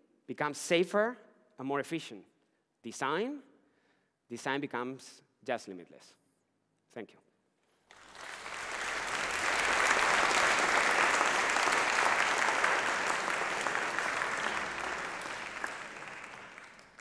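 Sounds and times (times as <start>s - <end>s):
audience applauding: 7.9s - 17.0s.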